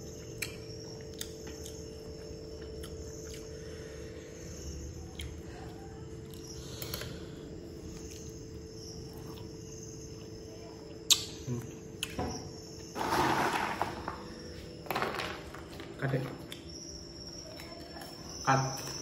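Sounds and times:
faint insect chirring: 0.0s - 19.0s
steady background hum: 0.0s - 19.0s
crackers rattling in plastic tub: 13.0s - 14.2s, 14.9s - 16.2s.

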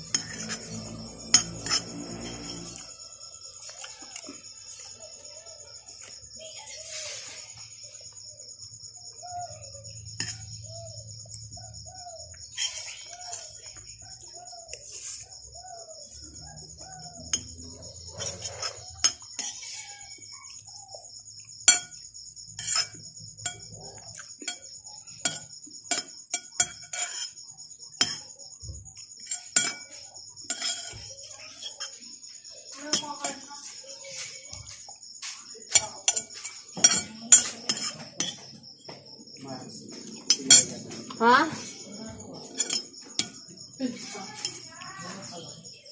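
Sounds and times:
spoon scraping ceramic plate: 0.0s - 4.8s, 10.2s - 10.6s, 12.4s - 13.8s, 16.9s - 20.6s, 22.6s - 28.3s, 29.2s - 39.0s, 40.0s - 44.7s
insect chirring: 0.0s - 45.9s.

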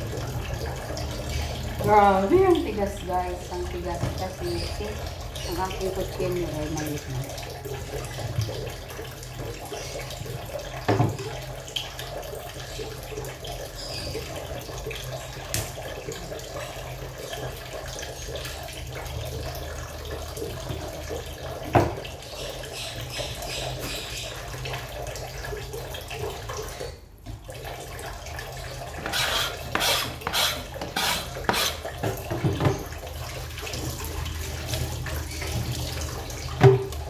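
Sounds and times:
tap running into pot: 29.0s - 32.9s.

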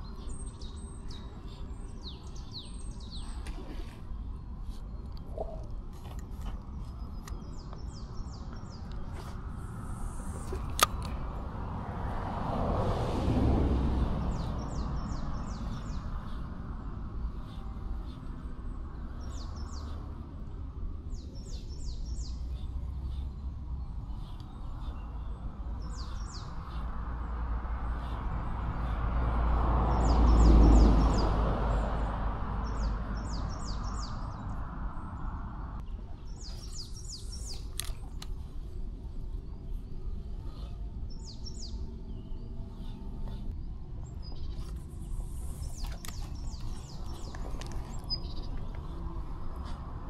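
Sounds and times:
songbird chirping: 0.0s - 12.6s, 13.4s - 50.0s.

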